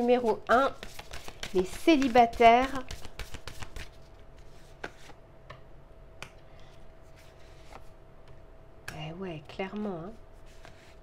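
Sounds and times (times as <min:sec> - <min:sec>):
faint steady hum: 0:00.0 - 0:11.0
cards tapping and flicking: 0:00.8 - 0:04.0.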